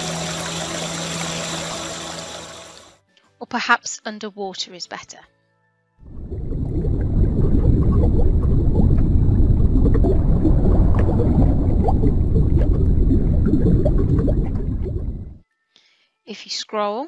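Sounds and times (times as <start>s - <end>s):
low underwater rush: 0.0s - 2.9s, 6.0s - 15.4s
bubbles: 6.0s - 15.4s.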